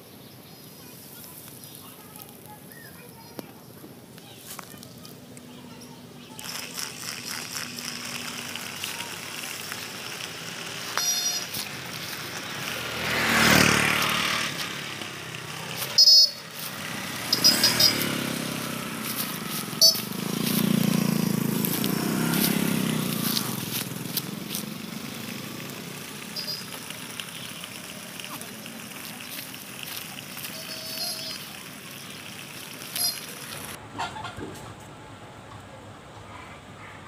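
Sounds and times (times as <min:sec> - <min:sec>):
toy truck motor on asphalt: 0:00.6 - 0:33.8
short high chirps: 0:10.9 - 0:11.6, 0:15.8 - 0:16.5, 0:17.3 - 0:18.2, 0:19.6 - 0:20.2, 0:26.3 - 0:26.8, 0:30.4 - 0:31.5, 0:33.0 - 0:33.4.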